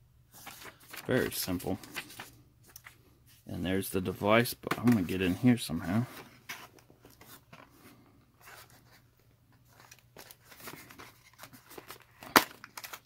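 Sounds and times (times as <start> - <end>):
cardboard and plastic packaging handled: 0.3 - 13.0.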